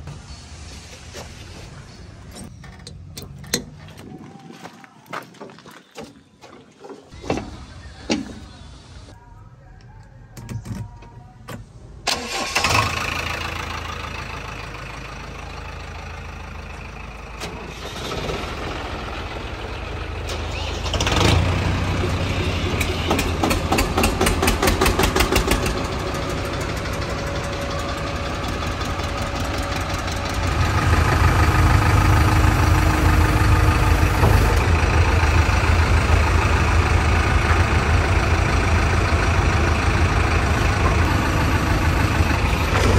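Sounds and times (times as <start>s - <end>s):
tractor engine starting and running: 0.0s - 42.9s
deep diesel engine running: 11.7s - 42.9s.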